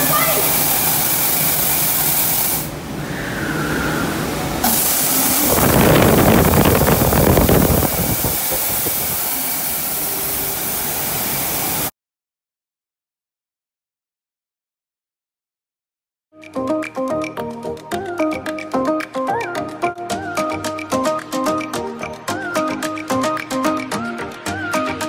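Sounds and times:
rushing water and spray: 0.0s - 11.9s.

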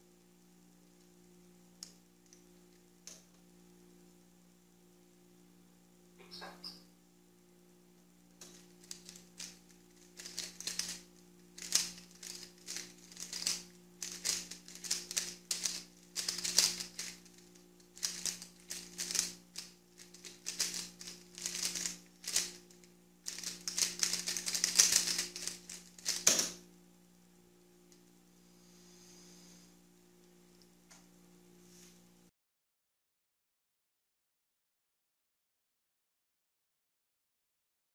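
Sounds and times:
rapid plastic clicking of cube: 8.4s - 26.6s.

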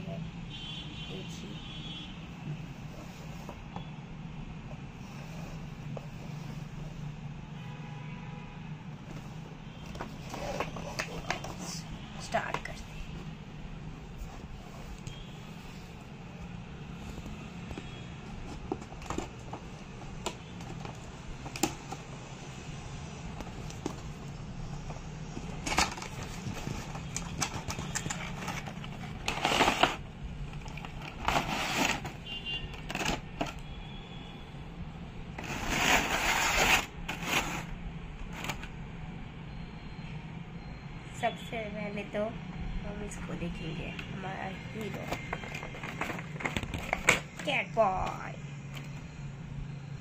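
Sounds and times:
cardboard and plastic rustling: 9.0s - 33.8s, 35.3s - 38.7s, 44.5s - 49.1s.

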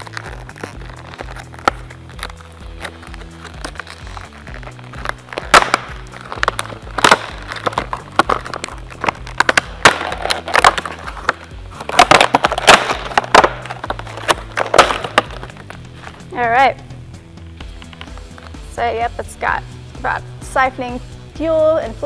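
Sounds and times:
plastic packaging crackling: 0.0s - 16.2s
background music with bass: 0.0s - 22.0s.

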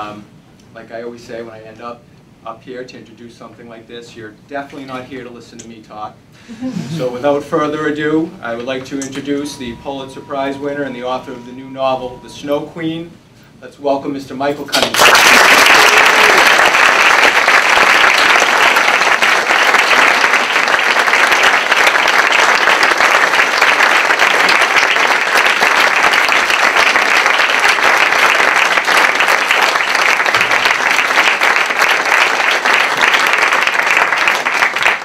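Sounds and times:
audience applauding: 14.8s - 35.0s.

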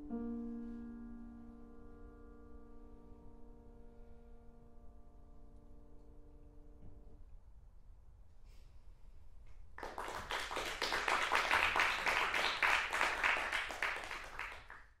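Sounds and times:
audience applauding: 9.8s - 15.0s.

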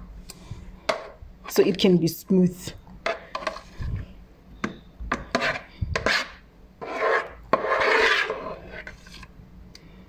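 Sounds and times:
spatula scraping bowl: 3.0s - 4.1s, 5.1s - 9.3s.

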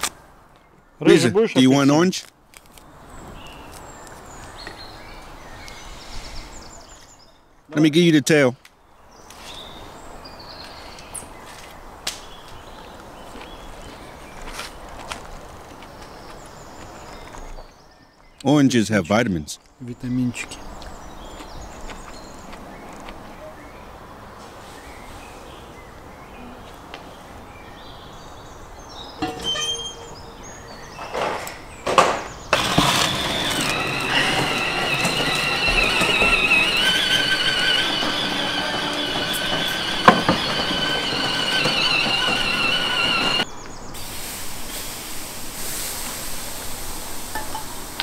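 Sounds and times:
metal tray scraping with squeal: 29.2s - 30.6s, 32.6s - 43.5s.

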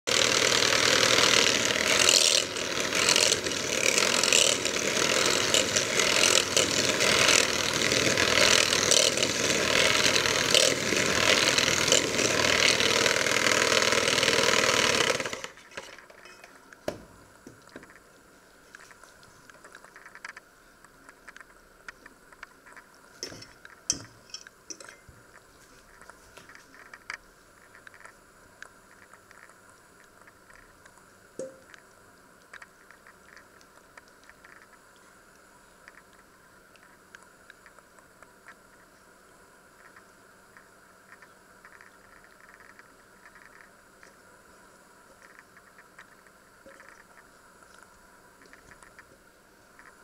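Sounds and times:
electric hand mixer whisking: 0.1s - 15.6s
faint clicks and knocks: 15.6s - 38.9s, 39.8s - 44.2s, 45.0s - 50.0s.

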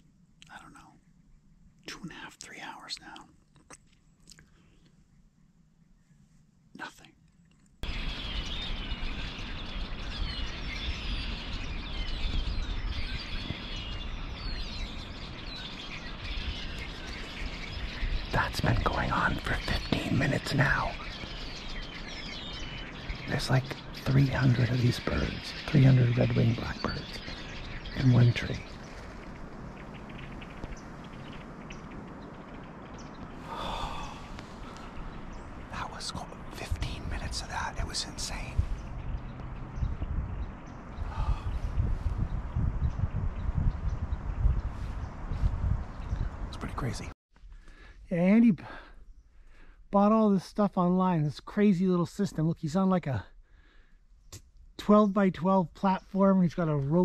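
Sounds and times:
blackbird flock chattering: 7.8s - 41.7s
low rumble: 7.8s - 47.1s.

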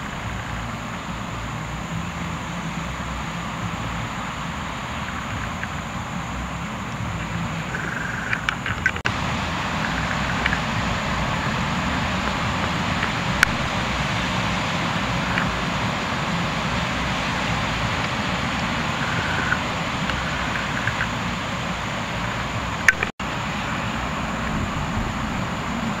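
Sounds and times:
surf breaking: 0.0s - 26.0s
wind: 0.0s - 26.0s.

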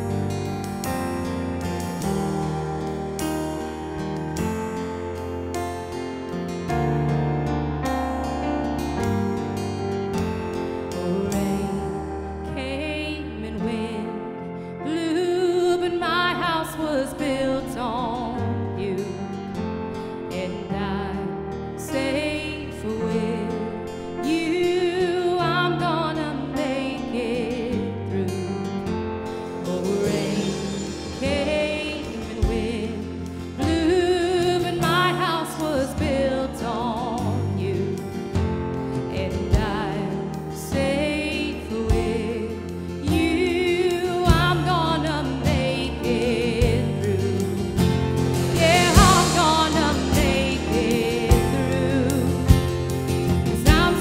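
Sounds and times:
electric and acoustic guitars: 0.0s - 54.0s
woman singing: 10.8s - 54.0s
drums: 29.6s - 35.1s, 38.1s - 40.0s, 41.9s - 42.4s, 43.1s - 54.0s.

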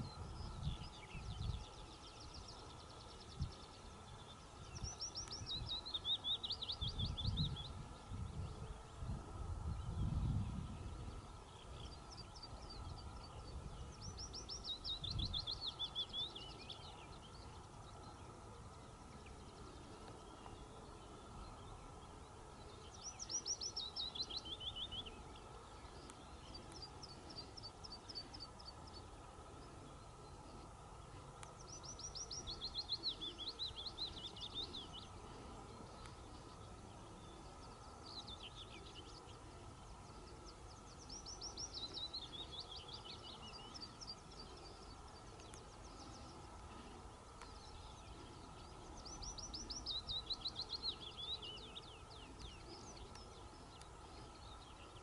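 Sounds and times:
faint steady hum: 0.0s - 55.0s
songbird singing trilled phrases: 0.0s - 55.0s.

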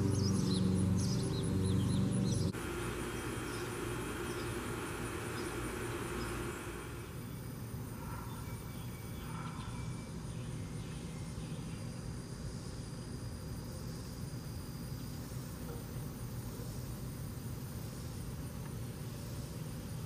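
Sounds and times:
low outdoor rumble: 0.0s - 7.5s.

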